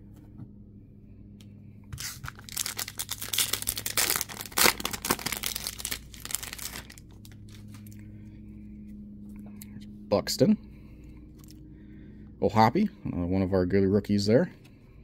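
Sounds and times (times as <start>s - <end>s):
wrapper tearing and crinkling: 2.0s - 7.8s.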